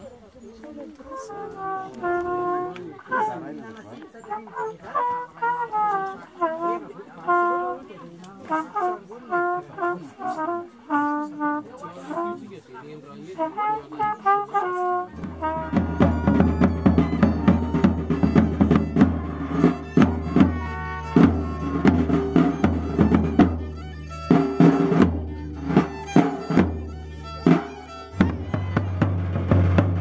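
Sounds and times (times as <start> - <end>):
violin playing a tune: 0.7 - 12.4, 13.4 - 30.0
trumpet notes: 1.0 - 12.5, 13.3 - 30.0
bass drum and small drum beating: 15.2 - 30.0.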